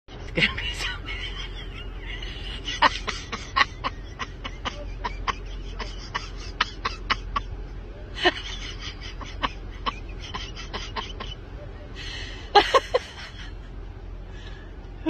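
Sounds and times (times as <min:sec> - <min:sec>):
muffled woman's voice: 0:00.3 - 0:01.4
stifled giggling: 0:00.4 - 0:13.7.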